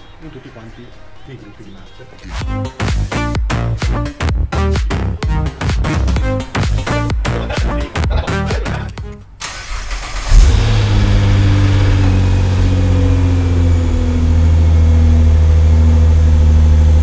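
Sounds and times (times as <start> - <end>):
car engine starting and idling: 9.0 - 17.0
engine revving: 9.4 - 17.0.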